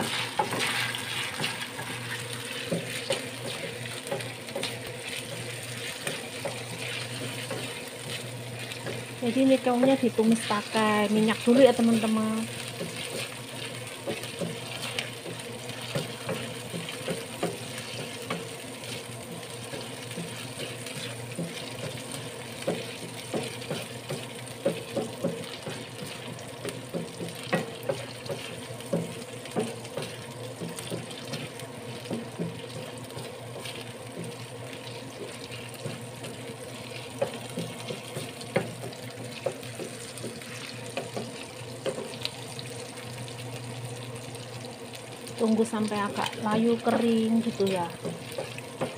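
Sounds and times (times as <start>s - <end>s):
range hood fan humming: 0.0s - 48.9s
snails sizzling in hot oil: 0.0s - 48.9s
wooden spatula knocking: 14.0s - 18.5s, 21.0s - 34.4s, 35.1s - 42.2s.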